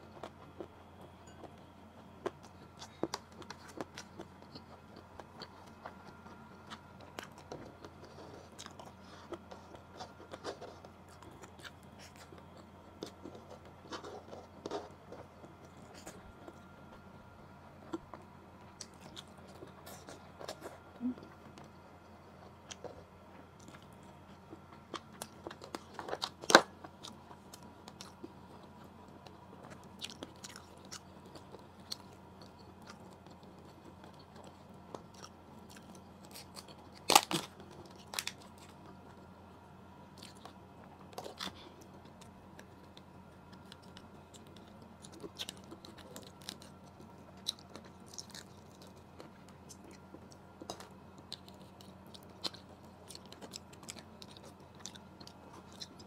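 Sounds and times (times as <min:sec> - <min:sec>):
chewing with crunches: 0:00.0 - 0:56.0.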